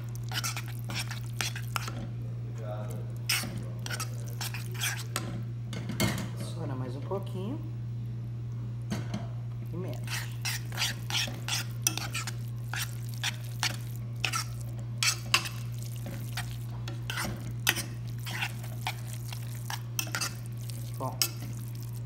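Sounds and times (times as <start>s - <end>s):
spoon scraping a pan: 0.0s - 2.1s, 3.2s - 5.4s, 9.9s - 22.0s
steady low hum: 0.0s - 22.0s.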